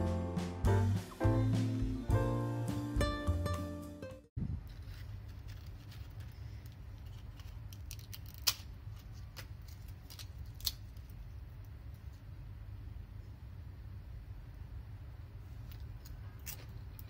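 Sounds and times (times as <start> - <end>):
crisp papad crackling and snapping: 4.7 - 11.2.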